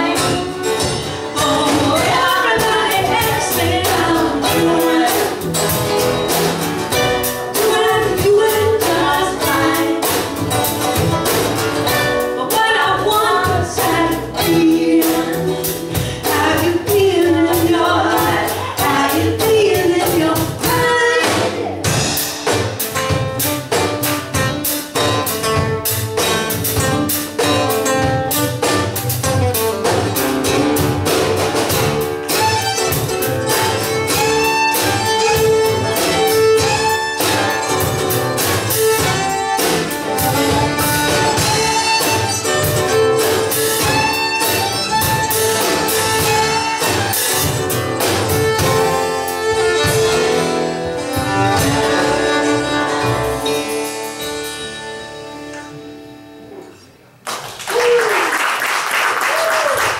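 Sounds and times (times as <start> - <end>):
woman singing: 0.0 - 5.7, 7.5 - 10.3, 12.4 - 21.9
acoustic string band playing: 0.0 - 57.0
fiddle: 5.8 - 19.1, 31.6 - 56.0.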